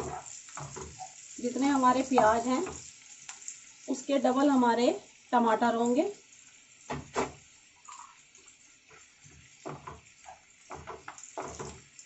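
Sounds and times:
spatula scraping frying pan: 0.0s - 3.0s, 8.9s - 11.9s
onions sizzling: 0.0s - 12.0s.

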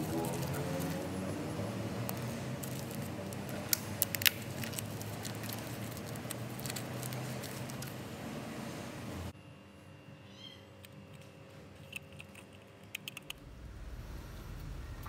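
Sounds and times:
steady low hum: 0.0s - 15.0s
plastic bag crinkling: 2.1s - 8.0s.

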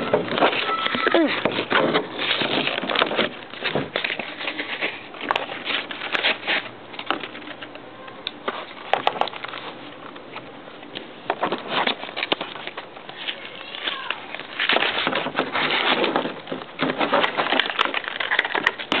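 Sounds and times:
plastic packaging crinkling: 10.9s - 19.0s.

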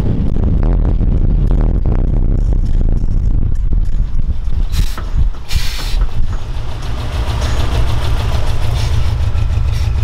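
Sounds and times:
truck engine rumbling: 0.0s - 10.0s
wind or road noise hiss: 4.6s - 6.3s.

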